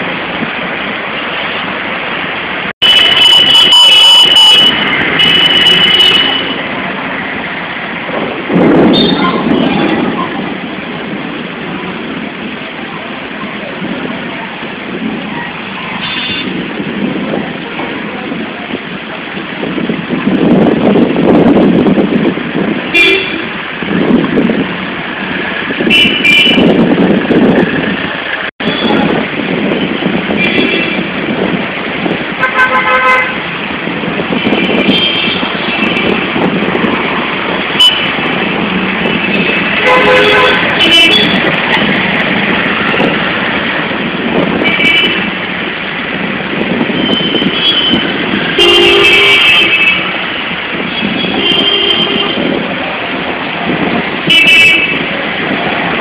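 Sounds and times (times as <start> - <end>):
road traffic rumble: 0.0 - 56.0
vehicle horns tooting: 2.8 - 6.7, 8.8 - 10.2, 16.0 - 16.6, 22.9 - 23.6, 25.8 - 26.8, 29.7 - 31.1, 32.4 - 33.5, 34.3 - 36.5, 37.7 - 38.3, 39.0 - 42.0, 44.5 - 45.4, 46.8 - 52.6, 54.2 - 55.1.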